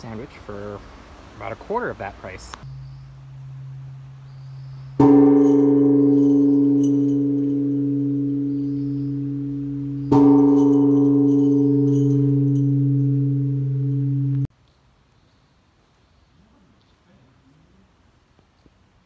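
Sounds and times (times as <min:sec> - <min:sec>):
large temple bell ringing: 0:02.7 - 0:14.5.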